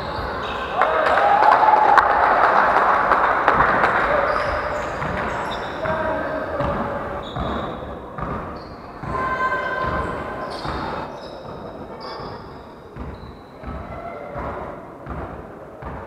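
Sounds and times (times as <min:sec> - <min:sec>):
voices calling: 0:03.8 - 0:07.9
shoes squeaking: 0:04.1 - 0:14.3
basketball bouncing on wooden floor: 0:08.2 - 0:10.9, 0:13.0 - 0:16.0.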